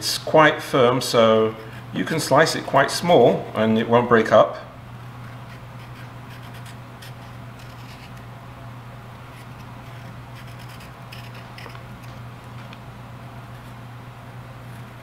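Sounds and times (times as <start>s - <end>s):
knife scraping squash skin: 5.3s - 8.3s, 9.3s - 12.2s.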